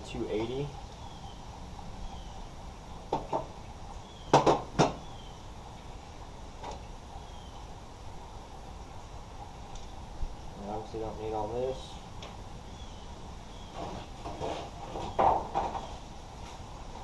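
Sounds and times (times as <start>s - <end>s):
knocks and clunks of objects: 3.1s - 3.6s, 4.3s - 5.0s, 13.8s - 16.0s.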